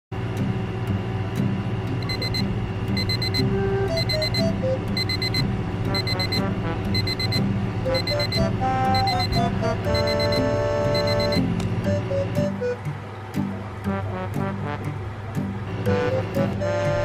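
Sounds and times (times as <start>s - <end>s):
phone alarm beeping: 2.0s - 11.5s.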